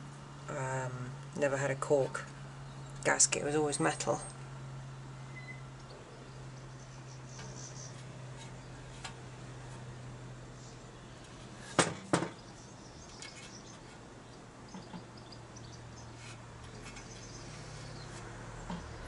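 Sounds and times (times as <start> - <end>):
steady low hum: 0.0 - 19.0
metal cover knocking on workbench: 11.8 - 12.4.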